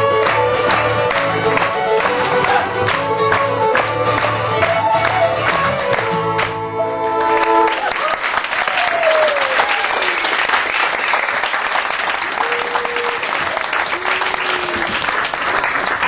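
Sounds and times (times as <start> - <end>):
audience applauding: 0.0 - 16.0
people whooping and cheering: 2.2 - 2.8, 7.6 - 10.7, 12.2 - 15.4.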